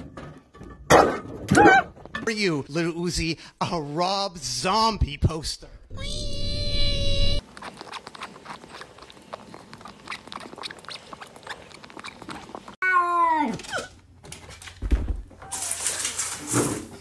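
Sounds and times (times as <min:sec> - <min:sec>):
kitten suckling clicks: 0:07.4 - 0:12.7.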